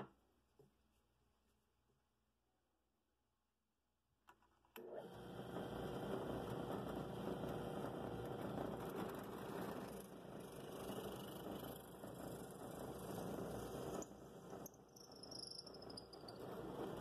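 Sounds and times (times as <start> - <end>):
drill press motor running: 4.8 - 17.0.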